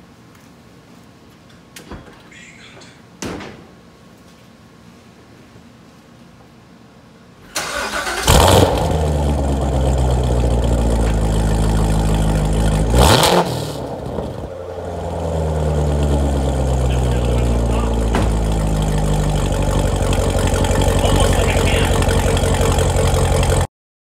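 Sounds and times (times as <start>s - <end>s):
car engine idling and revving: 7.9s - 23.7s.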